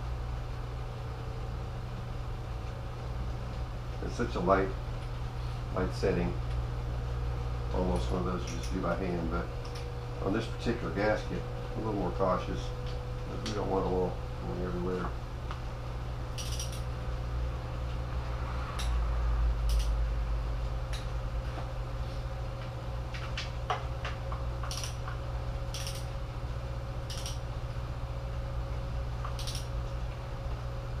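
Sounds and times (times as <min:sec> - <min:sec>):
steady low hum: 0:00.0 - 0:31.0
torque wrench clicks: 0:09.6 - 0:09.8, 0:16.4 - 0:16.8, 0:19.6 - 0:20.0, 0:24.6 - 0:25.1, 0:25.7 - 0:26.1, 0:27.0 - 0:27.4, 0:29.3 - 0:29.7.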